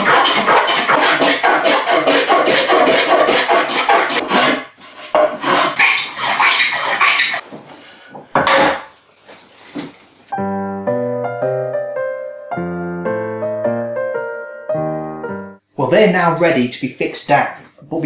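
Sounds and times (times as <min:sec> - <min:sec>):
block plane strokes on wood: 0:00.0 - 0:07.4
piano music: 0:10.3 - 0:15.7.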